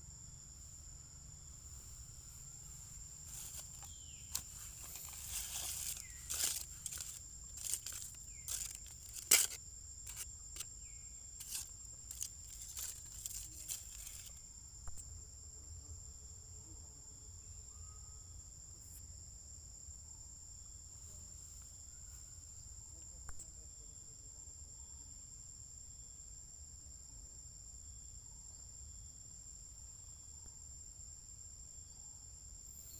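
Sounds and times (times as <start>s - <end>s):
high-pitched insect chorus: 0.0s - 32.9s
short rustles and clicks: 3.3s - 10.3s, 11.4s - 14.4s.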